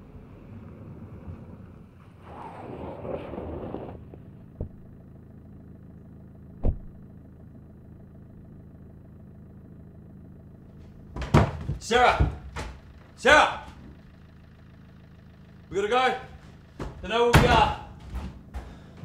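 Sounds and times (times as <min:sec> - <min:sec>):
low steady rumble: 0:00.0 - 0:19.0
dull thumps: 0:04.1 - 0:05.0, 0:06.6 - 0:07.0, 0:10.8 - 0:14.2, 0:16.2 - 0:19.0.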